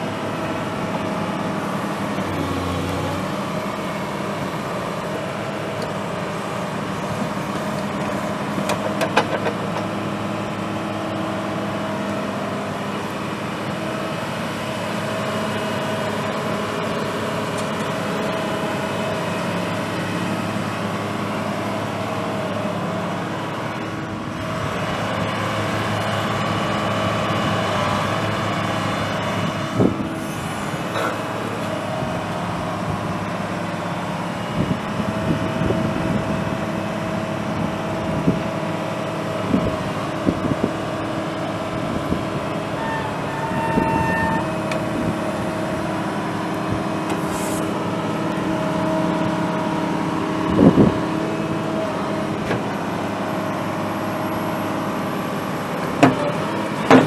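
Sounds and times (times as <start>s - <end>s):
excavator diesel engine running: 0.0s - 57.0s
short knocks and clunks: 56.0s - 57.0s.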